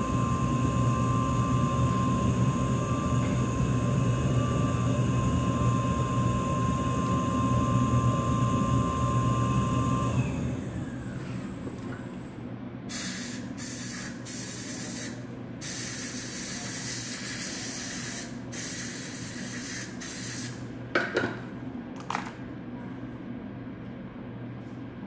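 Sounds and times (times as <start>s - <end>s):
dental air-water syringe hissing: 12.9s - 20.6s.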